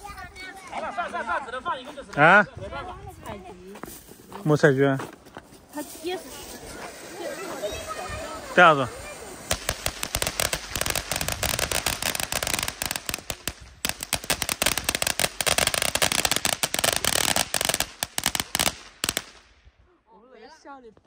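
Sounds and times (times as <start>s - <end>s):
firecrackers banging: 6.0s - 19.6s.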